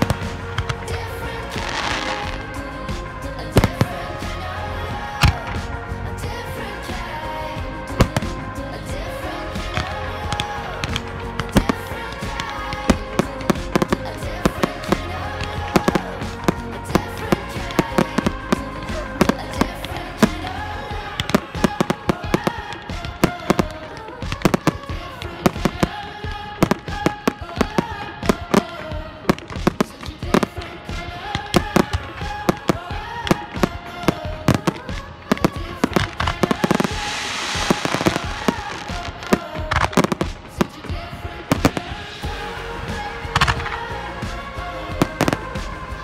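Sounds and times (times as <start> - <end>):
firework shells bursting: 17.3 - 42.3.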